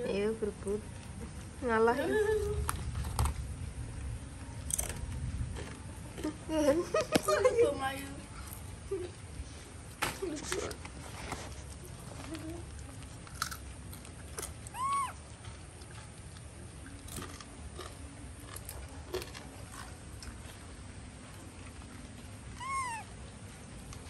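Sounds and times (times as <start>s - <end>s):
monkey chewing: 8.3s - 24.0s
monkeys squealing: 14.7s - 15.2s, 22.6s - 23.1s.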